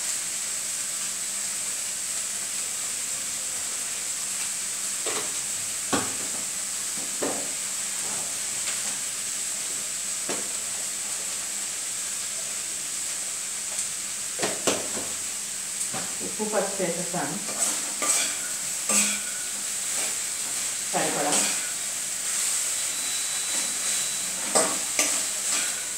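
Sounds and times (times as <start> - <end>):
cauliflower sizzling in oil: 0.0 - 25.9
spatula scraping a pan: 17.4 - 25.9.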